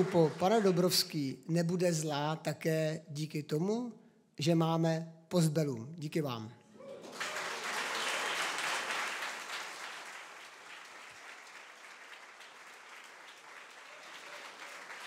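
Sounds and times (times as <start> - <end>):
audience applauding: 0.0 - 1.2, 7.0 - 15.0.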